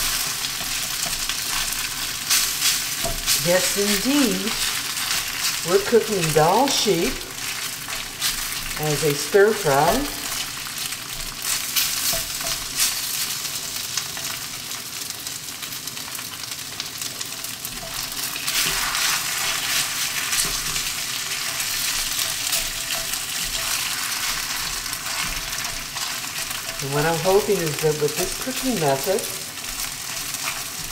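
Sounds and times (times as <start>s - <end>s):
meat sizzling in a wok: 0.0s - 30.9s
spatula scraping pan: 17.7s - 30.9s.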